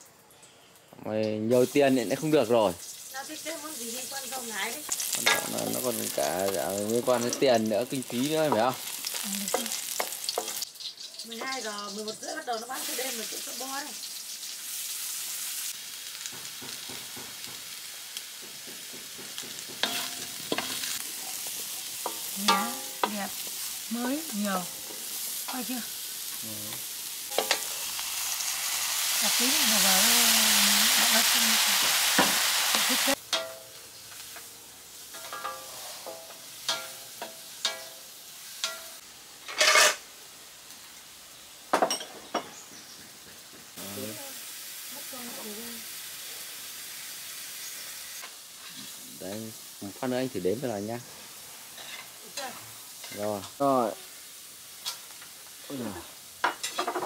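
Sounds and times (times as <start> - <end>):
eggplant sizzling in hot oil: 0.0 - 57.0
wooden spatula scraping wok: 18.4 - 27.8, 35.1 - 37.9, 39.4 - 40.0, 51.0 - 53.6.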